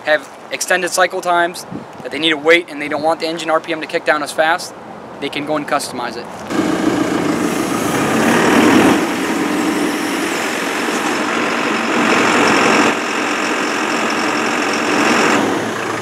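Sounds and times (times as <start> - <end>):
diesel engine running: 6.5 - 16.0.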